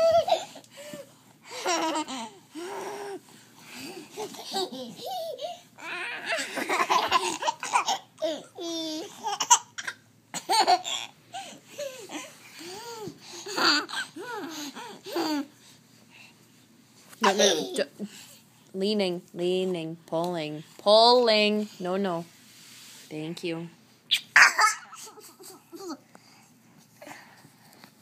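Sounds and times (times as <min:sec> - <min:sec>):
baby laughing: 0:00.0 - 0:00.7, 0:04.0 - 0:15.5, 0:17.2 - 0:17.9, 0:24.1 - 0:26.0.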